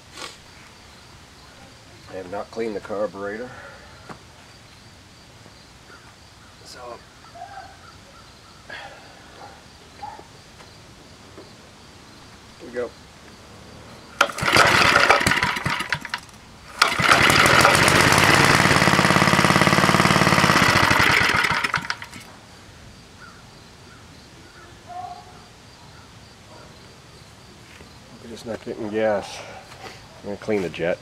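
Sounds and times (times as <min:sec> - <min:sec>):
small engine sputtering: 0:14.2 - 0:22.3.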